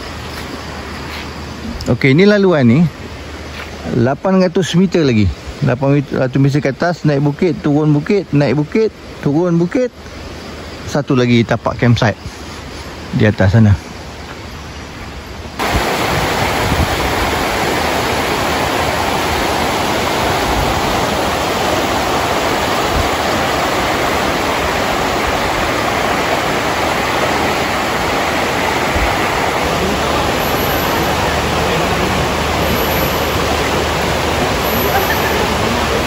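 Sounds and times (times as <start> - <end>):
river rushing over stones: 12.4 - 36.0.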